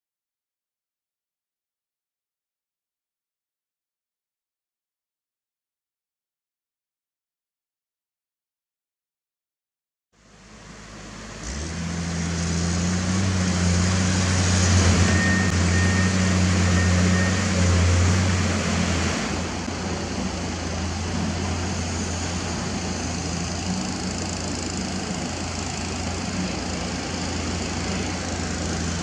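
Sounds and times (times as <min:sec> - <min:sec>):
steady low drone: 0:10.2 - 0:29.0.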